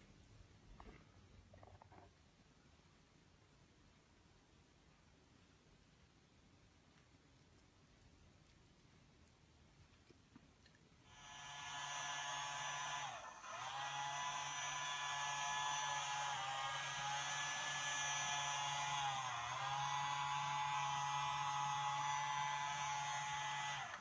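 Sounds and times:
electric nail grinder whining: 11.1 - 24.0.

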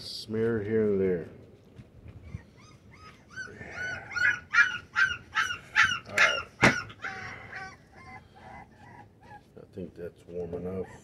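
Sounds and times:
puppies whining and yelping: 2.0 - 9.7, 10.5 - 11.0.

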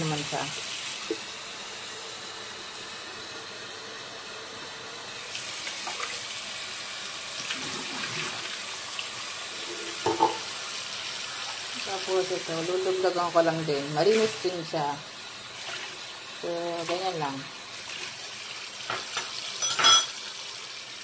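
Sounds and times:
water splashing into sink: 5.2 - 12.6, 13.8 - 14.7, 15.4 - 20.6.

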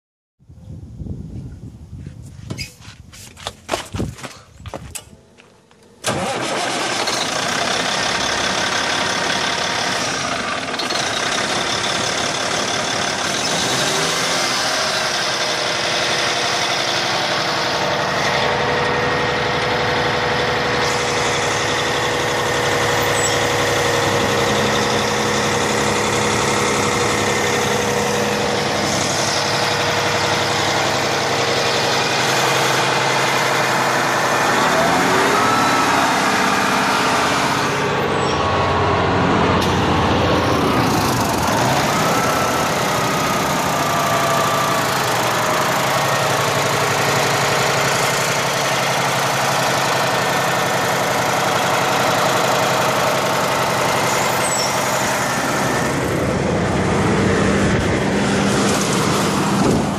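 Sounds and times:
diesel engine idling: 4.2 - 59.9.

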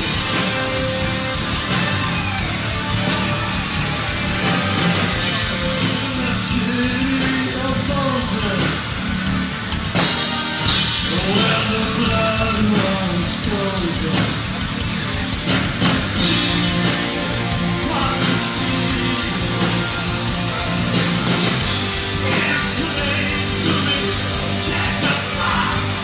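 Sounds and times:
distorted electric guitar: 0.0 - 26.0
drums: 0.0 - 26.0
man singing: 5.6 - 8.8, 11.0 - 14.4, 16.2 - 19.8, 22.2 - 26.0.

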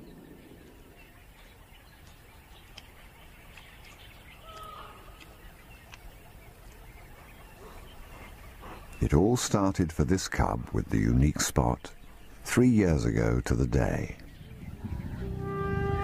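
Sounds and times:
faint bird calls: 0.0 - 9.7
natural background ambience: 0.0 - 16.0.

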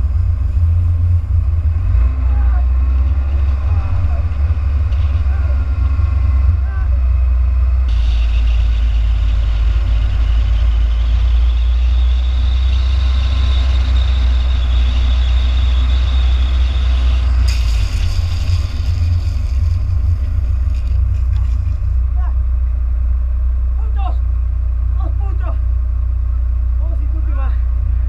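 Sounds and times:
wind rumbling on microphone: 0.0 - 22.4
longboard wheels rolling on asphalt: 12.6 - 22.1
glove scraping on road: 17.5 - 22.0.

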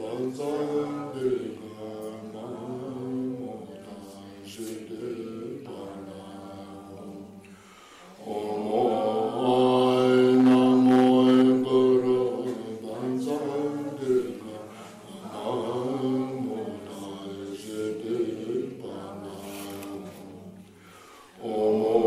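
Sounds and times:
voices chanting: 8.2 - 19.5.

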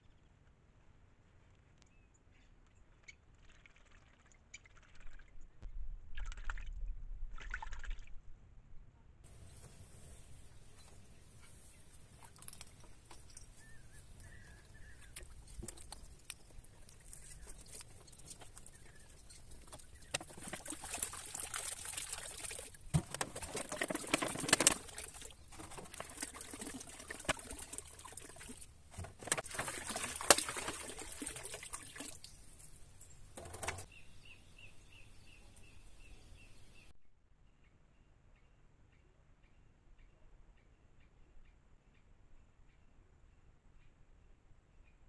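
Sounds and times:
water splashing into pool: 6.1 - 8.2, 19.5 - 32.8.

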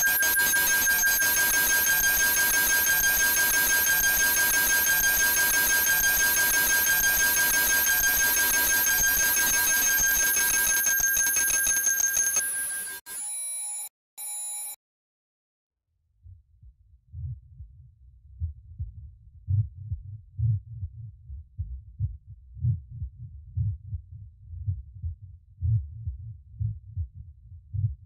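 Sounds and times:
pulsing tone: 0.0 - 13.5
pulsing alarm ringing: 0.0 - 14.8.

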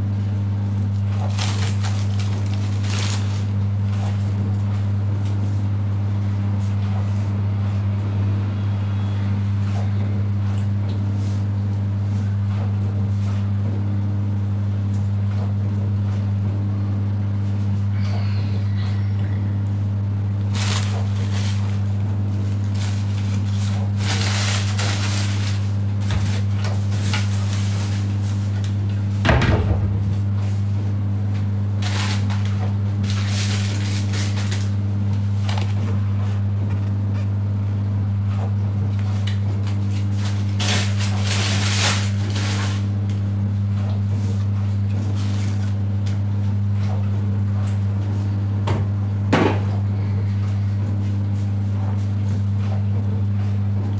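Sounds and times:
steady low hum: 0.0 - 53.9
scraping or rustling: 1.0 - 4.1, 20.5 - 21.8, 22.4 - 28.6, 31.8 - 34.7, 40.1 - 42.9.

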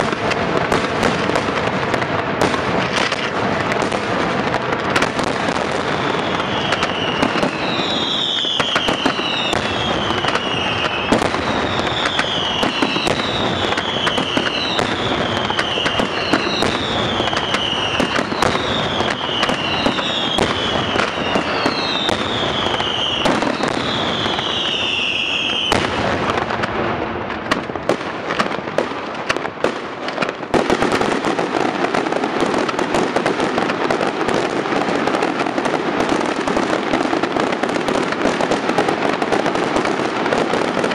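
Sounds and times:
firecracker bangs: 0.0 - 40.9
fireworks crackling: 0.0 - 40.9
falling firework whistle: 5.0 - 27.4.

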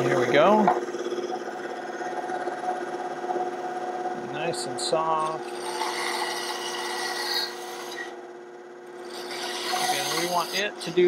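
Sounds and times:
band saw humming: 0.0 - 11.0
saw blade rasping through wood: 5.3 - 8.2, 9.0 - 11.0.

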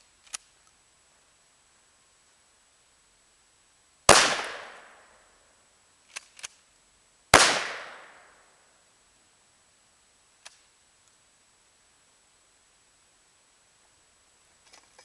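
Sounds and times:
shotgun blasts: 4.1 - 5.1, 7.3 - 8.4.

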